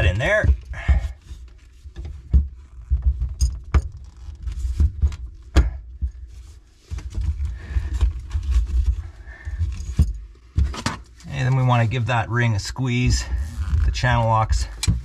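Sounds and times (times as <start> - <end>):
sharp clicks and light knocks: 14.6 - 15.0.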